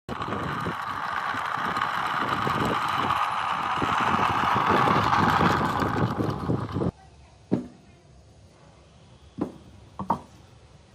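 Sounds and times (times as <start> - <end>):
model car rolling on asphalt: 0.0 - 7.0.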